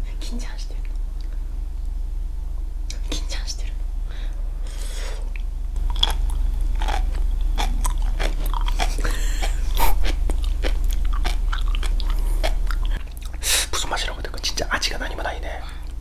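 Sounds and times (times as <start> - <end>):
steady low hum: 0.0 - 16.0
crunchy chewing pops: 5.4 - 13.4.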